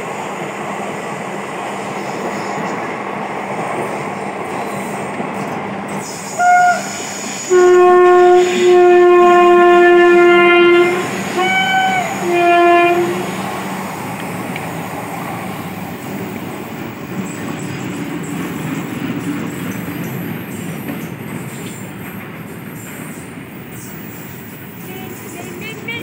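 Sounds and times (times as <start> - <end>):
freight train rumbling past: 0.0 - 26.0
locomotive air horn blasts: 6.3 - 13.4.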